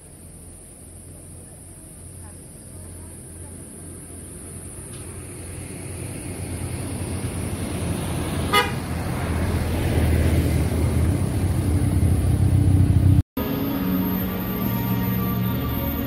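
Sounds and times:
vehicle engine rumble approaching: 0:00.0 - 0:16.0
short horn toot: 0:08.5 - 0:08.8.

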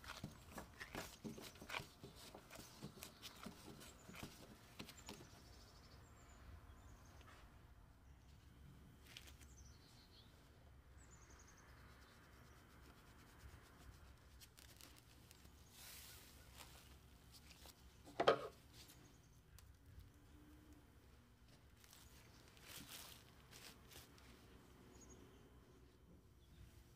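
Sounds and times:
rubbing dough and cling film: 0:00.0 - 0:05.6, 0:11.9 - 0:18.0, 0:21.5 - 0:24.9
cling film crinkle: 0:14.1 - 0:17.9.

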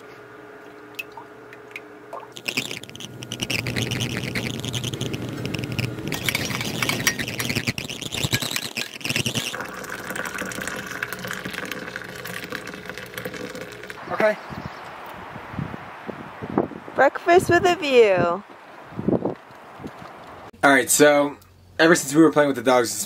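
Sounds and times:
liquid pouring into a mug: 0:02.2 - 0:14.0.

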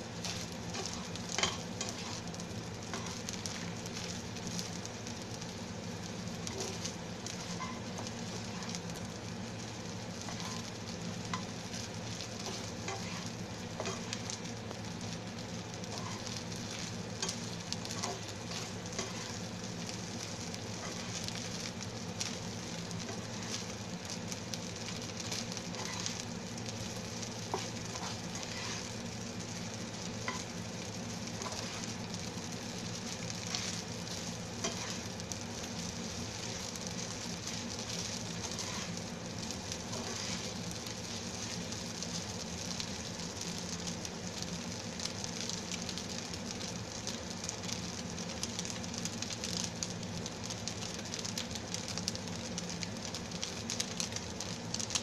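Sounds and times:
food sizzling in a frying pan: 0:00.0 - 0:55.0
spatula clicking and scraping pan: 0:00.2 - 0:04.7, 0:06.4 - 0:08.8, 0:10.2 - 0:14.4, 0:15.9 - 0:20.0, 0:20.7 - 0:23.8, 0:24.8 - 0:29.5, 0:30.2 - 0:32.1, 0:32.9 - 0:42.1.

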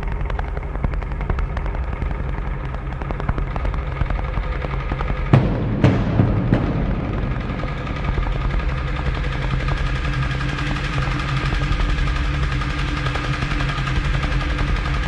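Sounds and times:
rapid drum roll: 0:00.0 - 0:15.0
steady pitched tones: 0:00.0 - 0:15.0.

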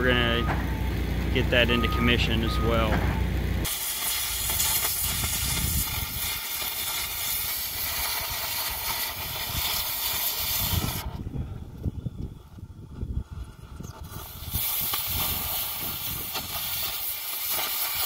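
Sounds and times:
cutting torch hissing: 0:03.6 - 0:11.2, 0:14.0 - 0:18.0.

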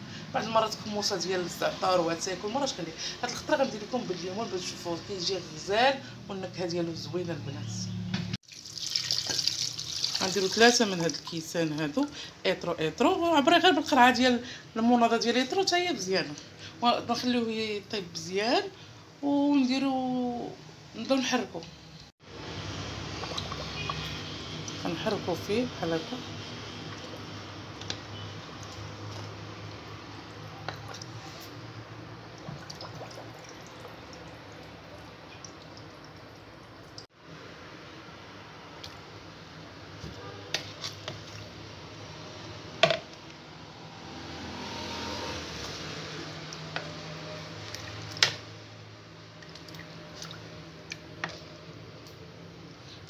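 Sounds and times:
spoon stirring sloshing mixture: 0:08.4 - 0:11.8, 0:22.7 - 0:37.0, 0:40.0 - 0:41.6, 0:45.6 - 0:53.0.

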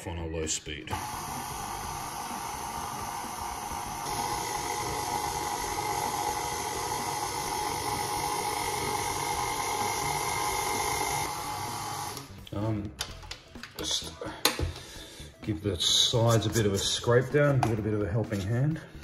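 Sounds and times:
stand mixer motor humming: 0:00.9 - 0:12.3.

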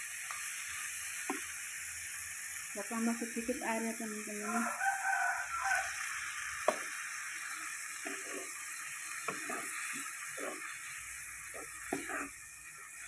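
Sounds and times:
mussels sizzling in a wok: 0:00.0 - 0:13.0
wooden spatula scraping and stirring: 0:07.5 - 0:13.0.

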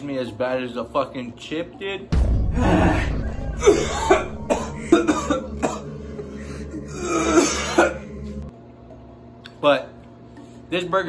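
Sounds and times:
man coughing hard: 0:03.6 - 0:08.2.

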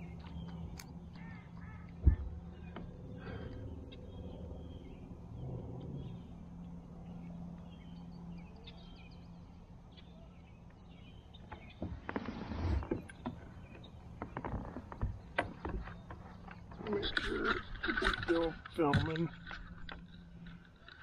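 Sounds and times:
steady low hum: 0:00.0 - 0:21.0
gear rustling against kayak: 0:11.4 - 0:21.0.

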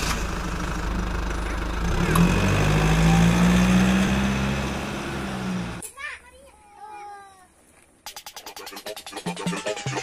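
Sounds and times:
vehicle engine running: 0:00.0 - 0:05.8.

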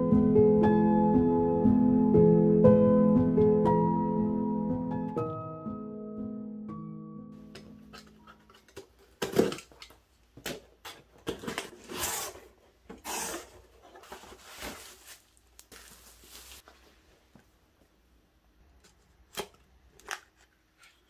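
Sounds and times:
box cutter slitting tape: 0:11.6 - 0:13.6
packaging rustling: 0:13.0 - 0:16.8
cardboard flaps scraping: 0:13.5 - 0:16.8.

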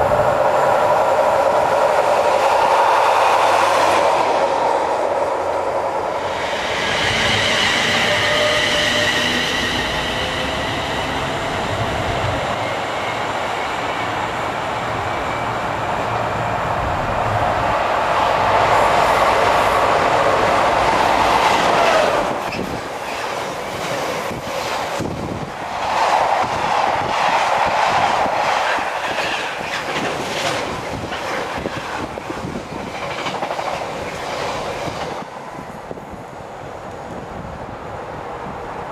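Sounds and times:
freight train passing: 0:00.0 - 0:38.9.

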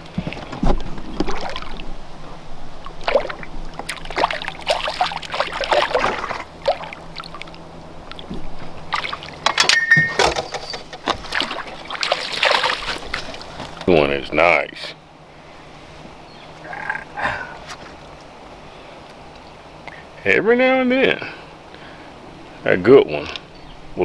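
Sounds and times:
fish splashing in water: 0:01.0 - 0:01.9, 0:02.8 - 0:09.5, 0:10.8 - 0:13.8.

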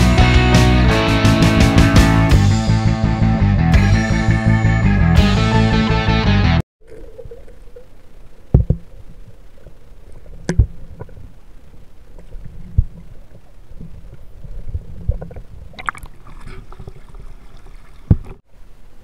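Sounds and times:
crackling splash: 0:06.8 - 0:18.4
underwater rumble and gurgling: 0:06.8 - 0:18.4.

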